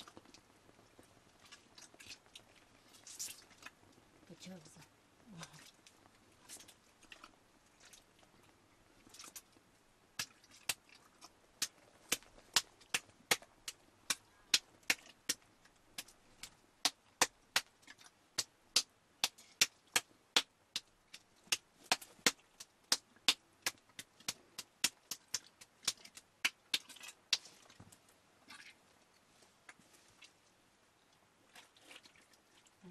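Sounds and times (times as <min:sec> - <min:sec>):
hands slapping wet food: 0:10.2 - 0:27.8.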